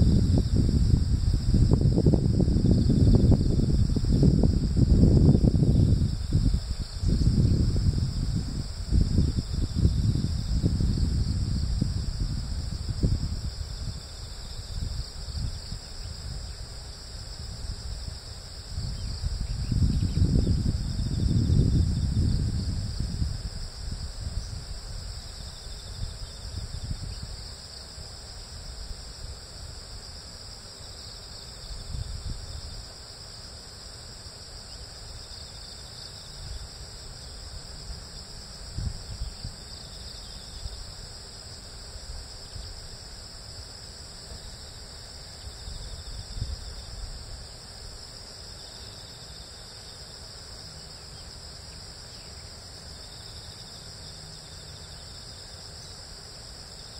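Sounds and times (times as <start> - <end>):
insects chirring: 0.0 - 56.9.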